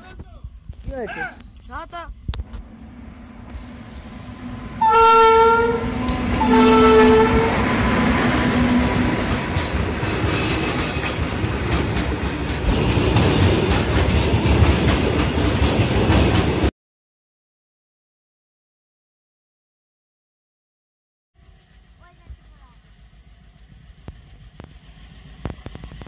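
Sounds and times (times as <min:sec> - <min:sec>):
locomotive horn blasts: 0:03.4 - 0:09.3
wheels clicking over rail joints: 0:09.1 - 0:16.6, 0:23.8 - 0:26.0.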